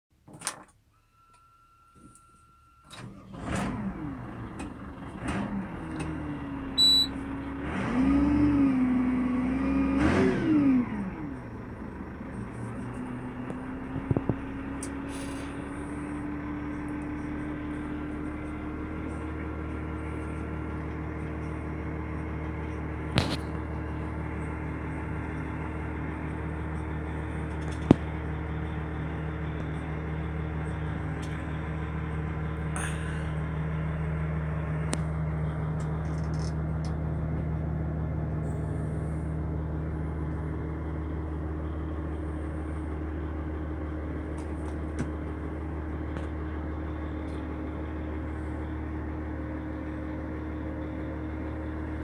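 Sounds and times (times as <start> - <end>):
tractor diesel engine revving and idling: 2.2 - 52.0
steady beep: 6.8 - 7.2.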